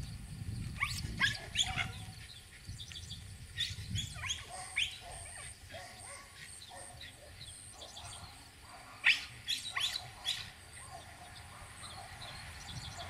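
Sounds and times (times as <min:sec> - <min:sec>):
puppies whining and yipping: 0:00.8 - 0:02.2, 0:03.5 - 0:07.0.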